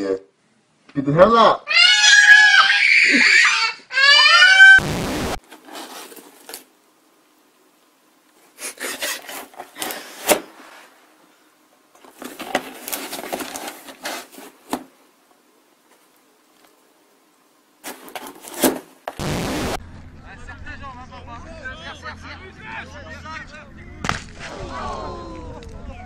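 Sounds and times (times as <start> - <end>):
static burst: 4.8 - 5.4, 19.1 - 19.8
cardboard rustling and scraping: 5.4 - 6.7, 8.5 - 11.0, 12.0 - 15.0, 17.8 - 19.2.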